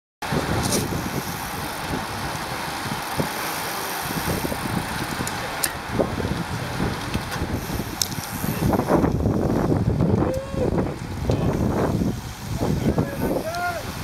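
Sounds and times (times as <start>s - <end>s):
wind on microphone: 0.2s - 3.4s, 4.0s - 14.0s
bicycle road rumble: 0.2s - 14.0s.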